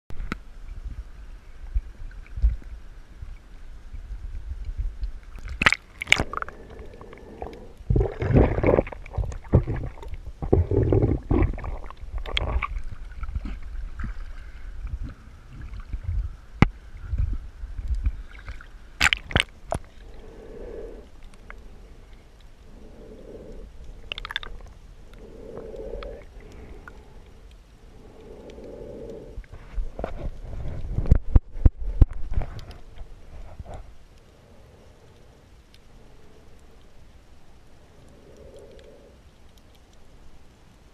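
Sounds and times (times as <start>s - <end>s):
low underwater pulses: 4.8s - 39.6s
water sloshing and splashing: 5.1s - 16.4s, 17.8s - 34.1s.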